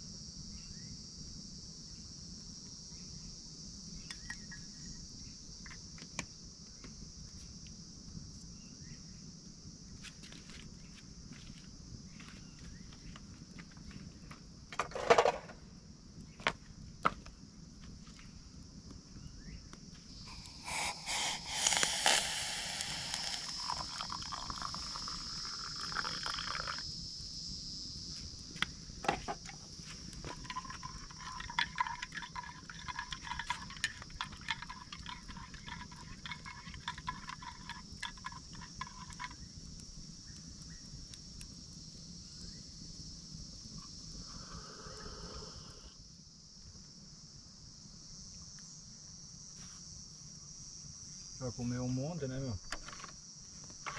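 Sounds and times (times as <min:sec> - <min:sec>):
water pouring: 0:20.3 - 0:26.8, 0:30.2 - 0:39.3
utensils clicking and knocking: 0:30.3 - 0:39.4.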